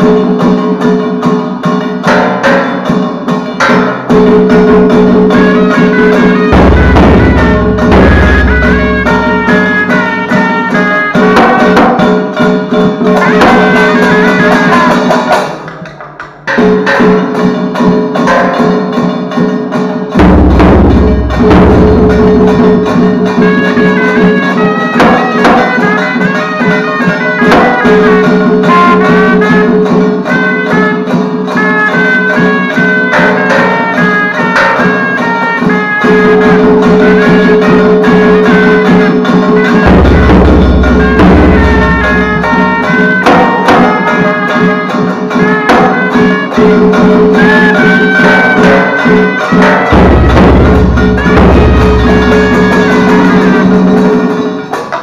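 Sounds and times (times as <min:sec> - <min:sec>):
hand cymbals: 0:00.0 - 0:55.0
small barrel drum beating: 0:00.0 - 0:55.0
traditional ritual music ensemble: 0:00.0 - 0:55.0
deep drum stroke: 0:06.5 - 0:10.2.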